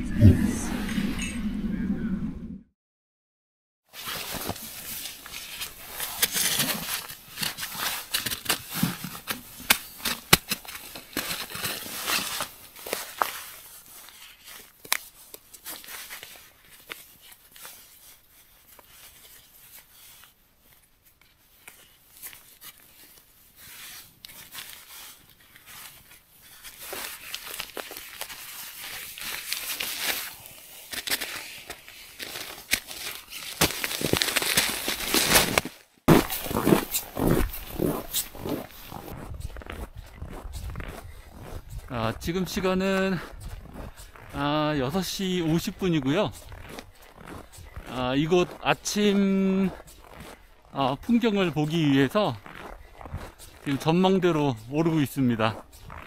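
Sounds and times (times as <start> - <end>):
nylon fabric rustling and crinkling: 3.9 - 40.7.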